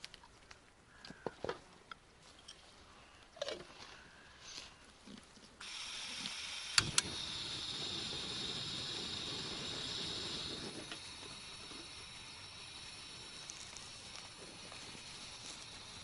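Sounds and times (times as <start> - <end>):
gas burner flame roaring: 5.6 - 16.0
gas hissing: 5.6 - 16.0
sharp igniter clicks: 5.6 - 16.0.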